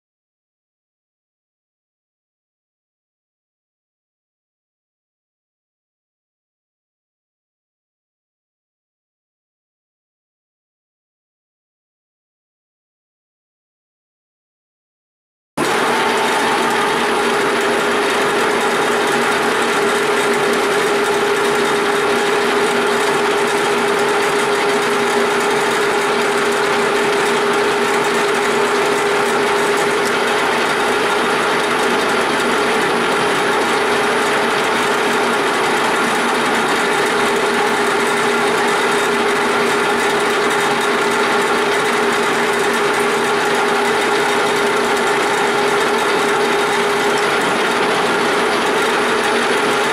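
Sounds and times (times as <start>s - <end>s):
lathe gear train whirring: 15.6s - 49.9s.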